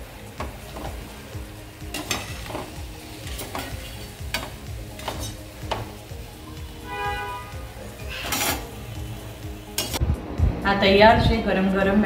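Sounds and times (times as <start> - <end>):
fritters sizzling in hot oil: 0.0 - 10.0
skimmer scraping and clinking pan: 1.9 - 5.4, 8.1 - 8.8.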